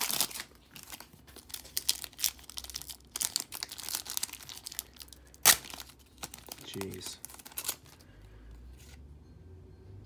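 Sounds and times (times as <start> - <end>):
plastic wrapper tearing and crinkling: 0.0 - 8.0.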